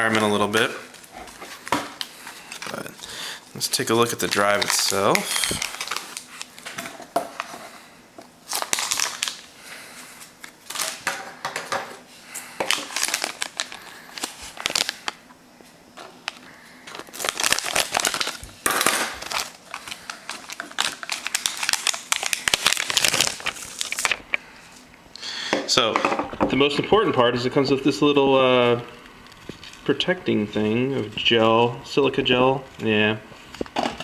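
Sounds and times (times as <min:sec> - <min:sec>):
foil bag crinkling: 0:00.0 - 0:07.6, 0:08.4 - 0:11.2, 0:12.3 - 0:15.3, 0:16.0 - 0:24.5
foam packing rustling: 0:03.7 - 0:07.6, 0:08.5 - 0:11.1, 0:12.6 - 0:15.2, 0:16.0 - 0:24.3.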